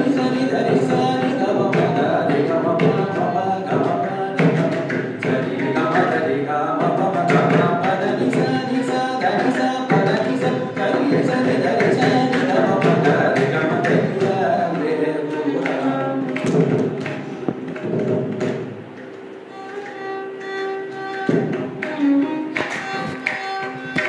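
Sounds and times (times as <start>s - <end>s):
man singing: 0.0s - 16.8s
violin: 0.0s - 24.0s.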